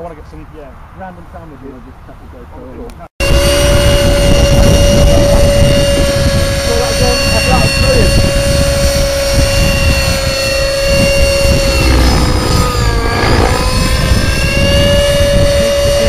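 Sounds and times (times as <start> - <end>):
model helicopter whine: 3.2 - 16.0.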